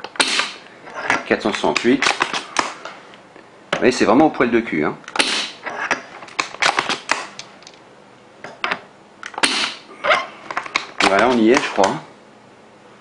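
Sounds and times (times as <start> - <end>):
metallic bolt clicks: 0.0 - 2.9
airsoft rifle shot: 0.2 - 0.6, 5.2 - 5.6, 9.4 - 9.8.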